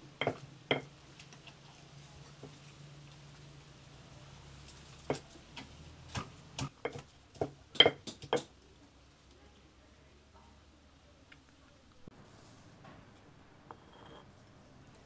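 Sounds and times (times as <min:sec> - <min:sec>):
stone pestle knocking in mortar: 0:06.8 - 0:08.5.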